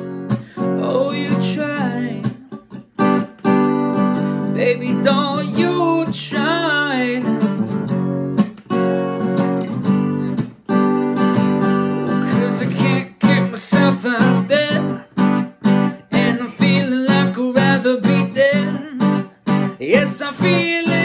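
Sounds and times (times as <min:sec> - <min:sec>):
man singing: 0:00.0 - 0:02.8, 0:04.4 - 0:07.8, 0:11.8 - 0:21.0
acoustic guitar strumming chords: 0:00.0 - 0:21.0.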